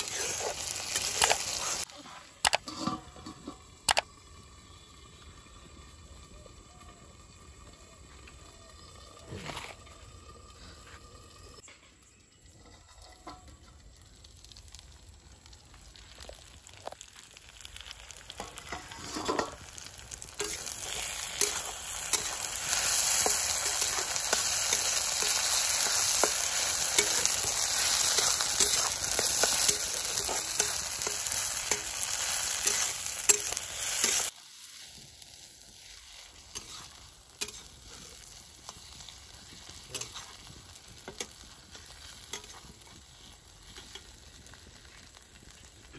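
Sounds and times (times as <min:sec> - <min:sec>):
metal spatula scraping a pan: 0:00.0 - 0:01.9, 0:02.6 - 0:03.7, 0:18.4 - 0:34.3, 0:35.9 - 0:38.9, 0:39.7 - 0:44.2
food sizzling in a wok: 0:00.0 - 0:45.9.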